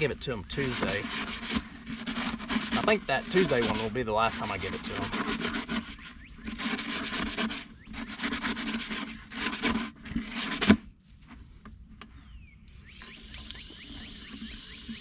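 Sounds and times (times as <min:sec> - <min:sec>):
hose running water: 0:00.0 - 0:05.8, 0:12.9 - 0:15.0
brush scrubbing plastic: 0:00.0 - 0:10.8.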